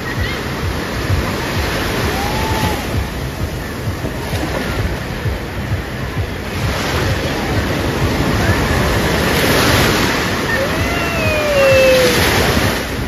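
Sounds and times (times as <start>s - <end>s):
sea surf breaking: 0.0s - 13.0s
wind buffeting microphone: 0.0s - 13.0s.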